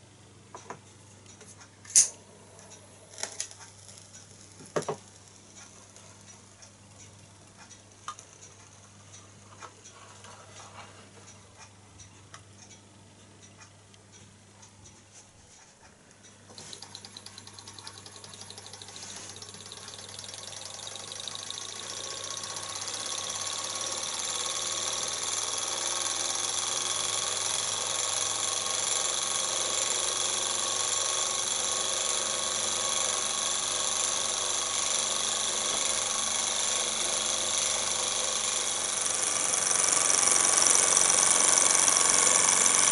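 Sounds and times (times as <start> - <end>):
toy hot air engine running: 3.1 - 8.3, 16.5 - 42.9.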